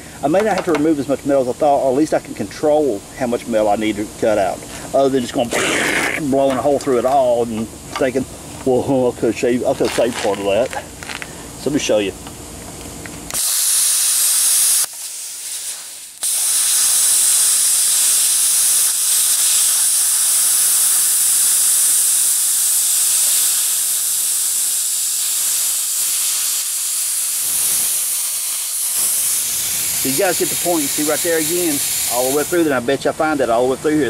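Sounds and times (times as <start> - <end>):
plasma cutter hissing: 2.7 - 7.8, 13.3 - 32.9.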